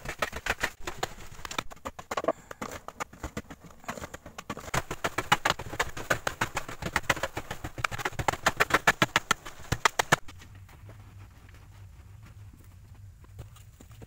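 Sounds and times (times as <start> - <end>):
hand tool chopping dry soil: 0.0 - 10.6.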